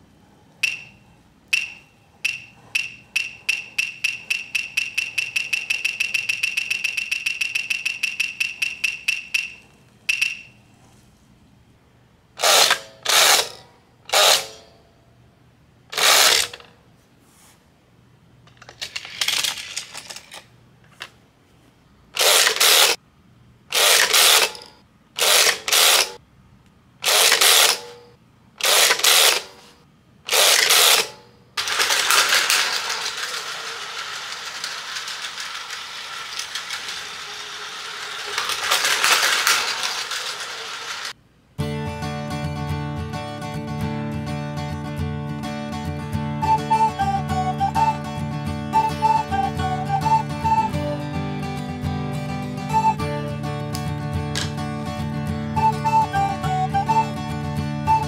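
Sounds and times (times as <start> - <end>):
plastic toy ratchet clicking: 2.3 - 10.4, 16.0 - 16.7, 18.5 - 20.4, 22.2 - 23.0, 23.7 - 26.2, 27.0 - 28.0, 28.6 - 29.5, 30.3 - 41.2.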